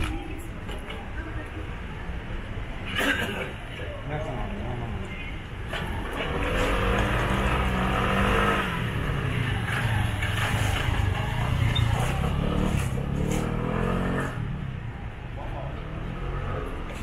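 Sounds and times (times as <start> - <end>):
motor vehicle engine revving: 5.9 - 14.6.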